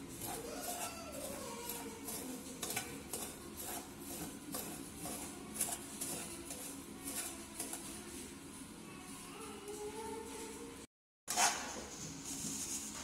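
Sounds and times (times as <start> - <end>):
metal spoon scraping a wok: 0.0 - 8.2, 11.3 - 11.8.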